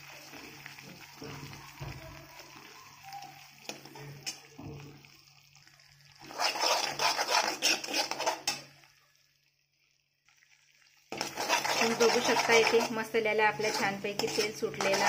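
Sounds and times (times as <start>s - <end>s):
paste frying in oil: 0.0s - 15.0s
spoon scraping metal pan: 6.2s - 8.7s, 11.1s - 15.0s.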